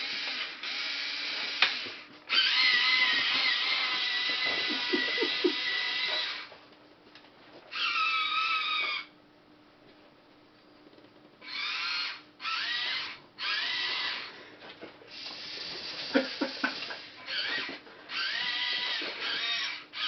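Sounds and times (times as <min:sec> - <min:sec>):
small electric motors whirring: 0:00.0 - 0:06.5, 0:07.7 - 0:09.1, 0:11.4 - 0:14.4, 0:15.1 - 0:20.0.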